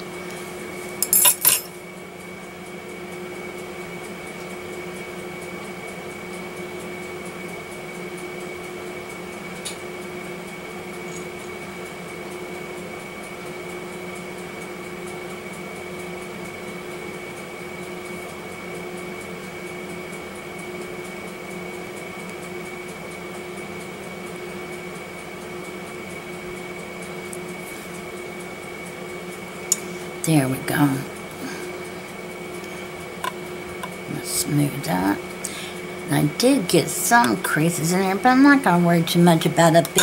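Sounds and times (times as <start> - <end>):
steady electrical hum: 0.0 - 40.0
metallic clinks of tool set down: 1.0 - 1.7.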